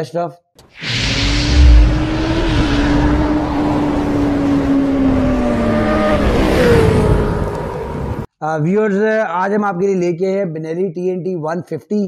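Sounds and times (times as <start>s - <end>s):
higher engine note dropping: 0.7s - 8.0s
motorcycle engine revving high: 0.7s - 8.2s.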